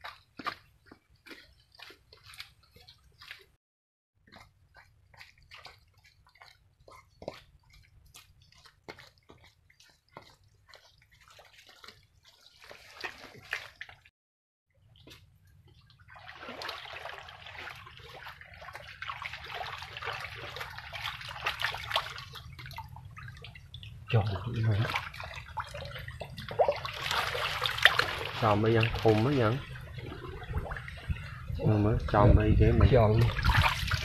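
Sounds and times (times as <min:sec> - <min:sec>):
hands squelching in mud: 0:05.2 - 0:14.1
hands splashing in muddy water: 0:07.3 - 0:14.1, 0:15.8 - 0:31.5, 0:33.0 - 0:34.0.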